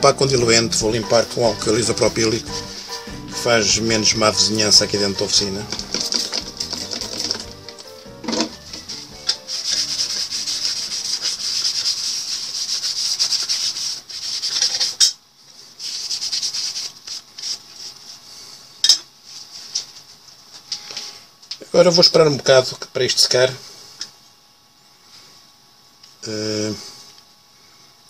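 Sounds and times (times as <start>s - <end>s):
cloth rubbing on metal: 0.8s - 4.8s, 5.4s - 18.3s.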